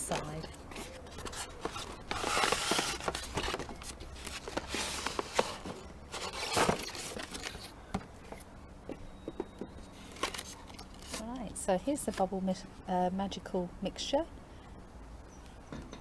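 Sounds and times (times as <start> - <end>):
cardboard box being opened: 0.1 - 7.7.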